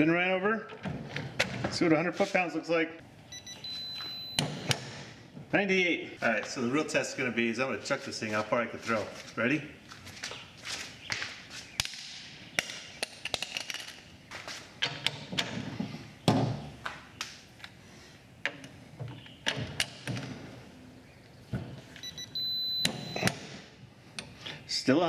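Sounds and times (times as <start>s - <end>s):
steady high beep: 3.3s - 4.4s, 22.0s - 23.3s.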